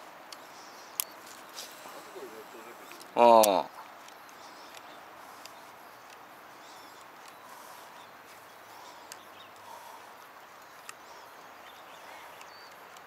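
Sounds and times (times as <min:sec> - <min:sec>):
faint distant birds chirping: 0:00.0 - 0:13.0
steady low hiss: 0:00.0 - 0:13.0
light clicks: 0:00.3 - 0:01.8, 0:02.8 - 0:07.4, 0:08.9 - 0:13.0.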